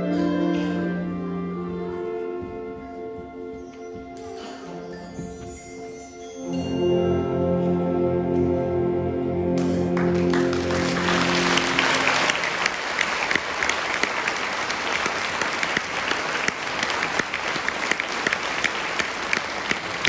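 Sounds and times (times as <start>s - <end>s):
audience applause: 9.8s - 20.0s.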